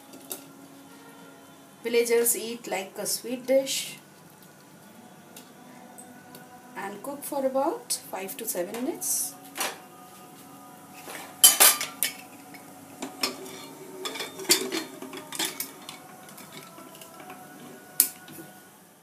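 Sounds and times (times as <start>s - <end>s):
metal lid clanks and clicks: 13.0s - 16.7s.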